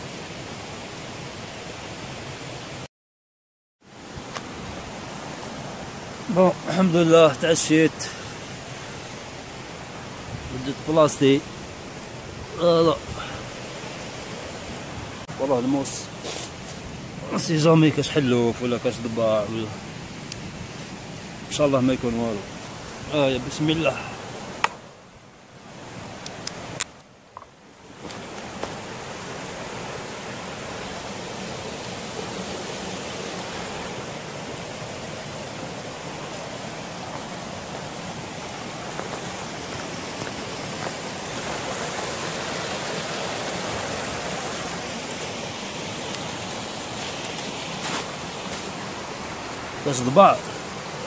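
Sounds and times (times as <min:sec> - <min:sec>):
waterfall rushing: 0:27.8 - 0:51.0.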